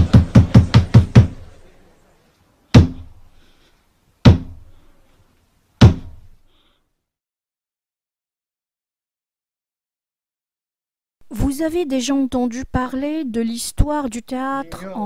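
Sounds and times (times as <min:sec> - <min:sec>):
wooden staff knocking on floor: 0:02.8 - 0:03.1, 0:04.3 - 0:04.6, 0:05.8 - 0:06.2.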